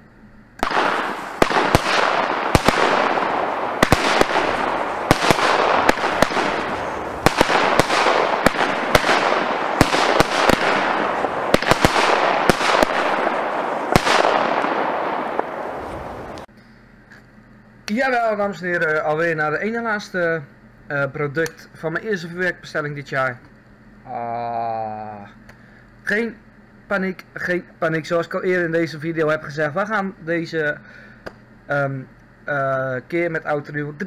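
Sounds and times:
firework bangs: 0:00.6 - 0:16.5
firework glitter hiss: 0:00.6 - 0:16.5.

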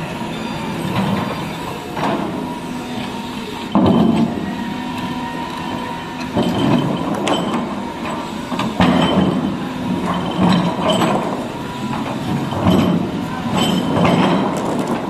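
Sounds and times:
excavator diesel engine: 0:00.0 - 0:15.0
hydraulic whine: 0:00.0 - 0:15.0.

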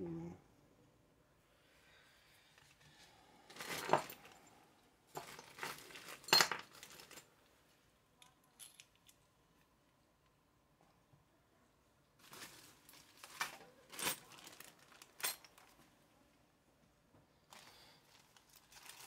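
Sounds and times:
metal parts clinking: 0:05.2 - 0:07.2, 0:08.2 - 0:09.2, 0:13.9 - 0:15.7.

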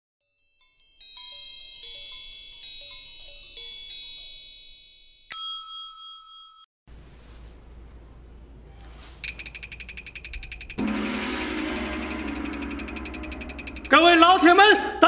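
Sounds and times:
shimmering chime jingle: 0:00.2 - 0:06.7, 0:10.8 - 0:15.0
bright bell strike: 0:09.3 - 0:14.8.

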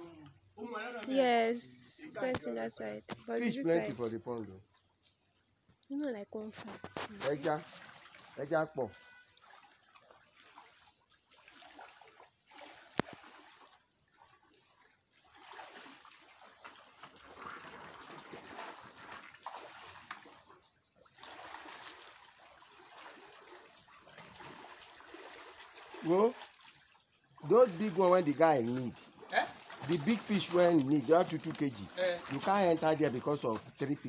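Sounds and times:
splashing of shallow water: 0:03.1 - 0:34.0.

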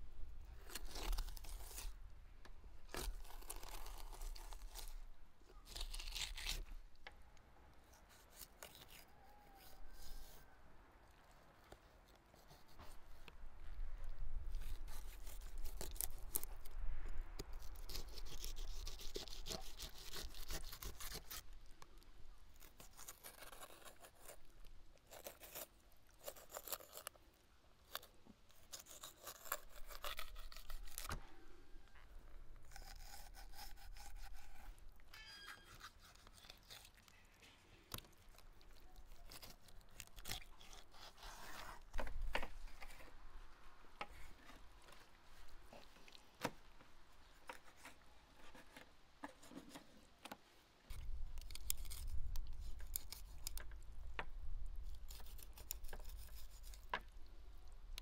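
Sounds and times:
knife scraping through fish: 0:32.7 - 0:37.1, 0:39.2 - 0:41.8.

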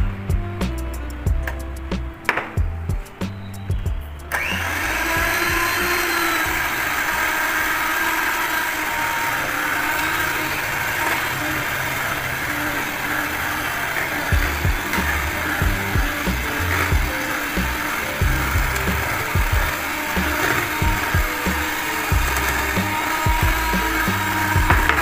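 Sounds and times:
background music with beat: 0:00.0 - 0:07.6, 0:14.2 - 0:25.0
electric hand mixer whisking: 0:04.3 - 0:25.0.

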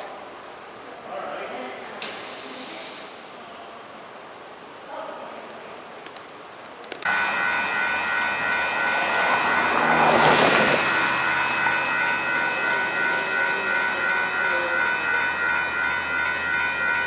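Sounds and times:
railroad crossing bell ringing: 0:07.0 - 0:17.0
rushing sound: 0:07.1 - 0:16.6.

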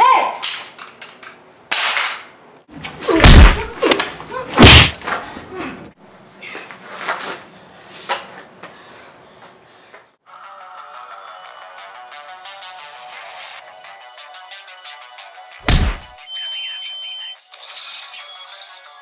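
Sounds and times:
loud deep bangs: 0:03.2 - 0:03.7, 0:04.6 - 0:05.0, 0:15.7 - 0:16.1.

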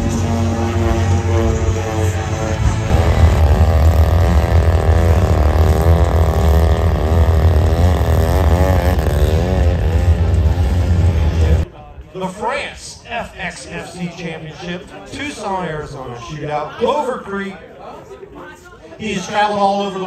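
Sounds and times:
model airplane engine wavering: 0:00.0 - 0:11.6.

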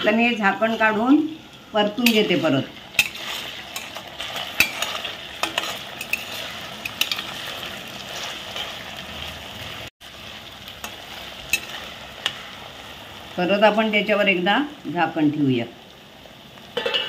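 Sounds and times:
potatoes sizzling in hot oil: 0:00.0 - 0:17.0
spatula scraping a steel pan: 0:02.0 - 0:08.8.

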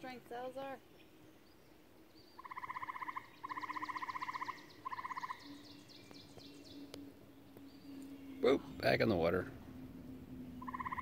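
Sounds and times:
faint bird chirps: 0:00.6 - 0:11.0
frog calling in pulsed trills: 0:02.4 - 0:08.8, 0:09.6 - 0:11.0.

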